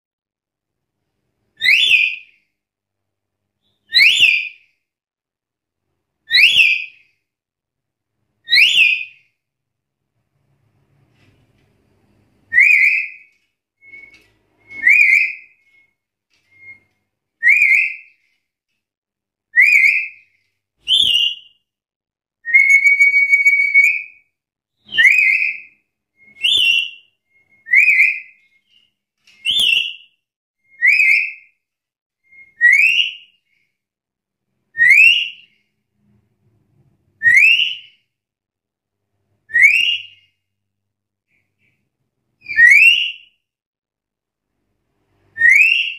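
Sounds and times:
parrot whistled calls: 0:01.6 - 0:02.3, 0:03.6 - 0:04.6, 0:06.3 - 0:07.0, 0:08.5 - 0:09.2, 0:12.5 - 0:15.8, 0:16.5 - 0:18.2, 0:19.5 - 0:20.2, 0:20.8 - 0:21.6, 0:22.4 - 0:24.2, 0:24.8 - 0:31.5, 0:32.2 - 0:33.3, 0:34.8 - 0:35.6, 0:37.2 - 0:38.0, 0:39.5 - 0:40.3, 0:42.4 - 0:43.3, 0:45.4 - 0:45.9.

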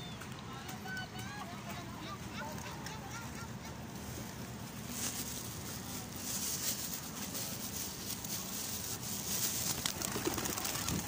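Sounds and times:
steady outdoor hiss: 0:00.0 - 0:11.0
pigeon wing flutters: 0:08.0 - 0:11.0.

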